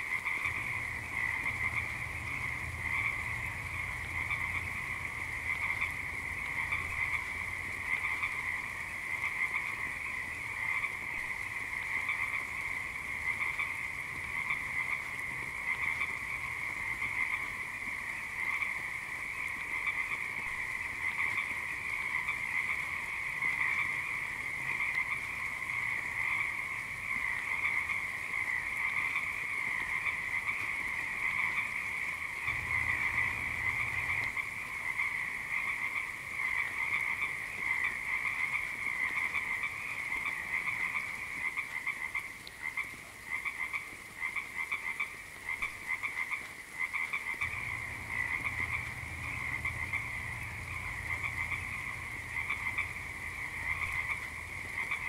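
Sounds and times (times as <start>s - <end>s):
frogs croaking in chorus: 0.0s - 55.0s.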